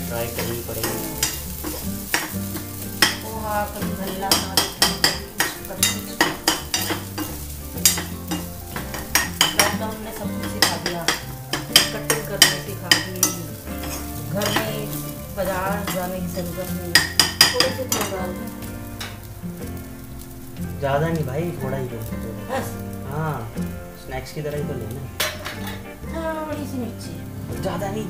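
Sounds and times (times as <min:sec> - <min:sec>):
rice sizzling in a pan: 0:00.0 - 0:28.0
spoon scraping and clinking pan: 0:04.0 - 0:15.0, 0:16.9 - 0:18.2, 0:25.2 - 0:25.9.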